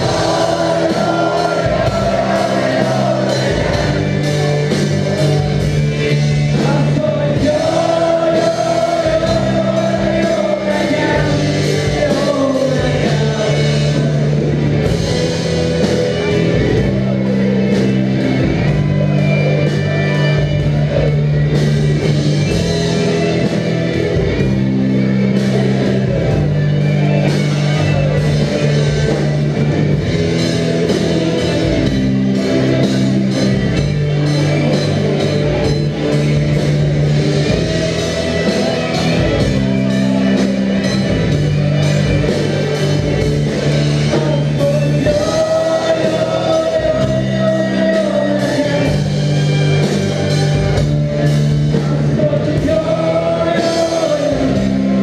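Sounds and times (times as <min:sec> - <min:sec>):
bass guitar line: 0:00.0 - 0:55.0
electric guitars: 0:00.0 - 0:55.0
rock drums: 0:00.0 - 0:55.0.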